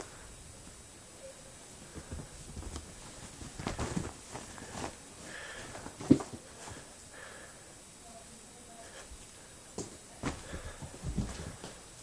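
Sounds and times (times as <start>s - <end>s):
rustling on soft bedding: 0.0s - 7.1s.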